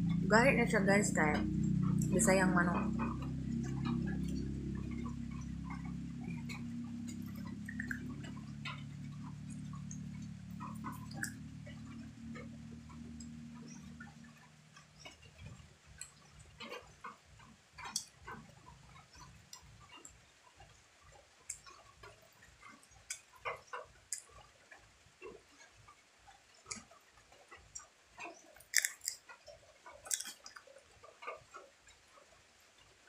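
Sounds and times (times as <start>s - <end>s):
chewing with wet mouth smacks: 2.8s - 11.5s, 28.5s - 29.3s, 29.9s - 30.7s.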